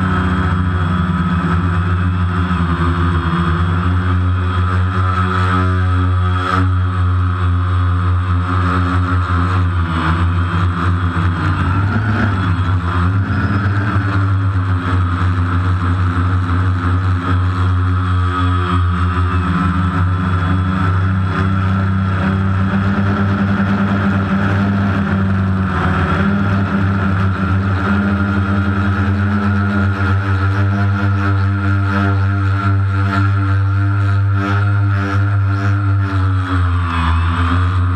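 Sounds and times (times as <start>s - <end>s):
drone propellers humming: 0.0s - 37.9s.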